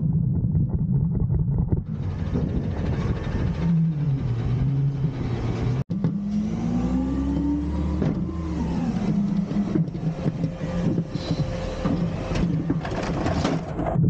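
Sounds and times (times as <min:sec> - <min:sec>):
garbage truck engine revving: 0:01.8 - 0:14.0.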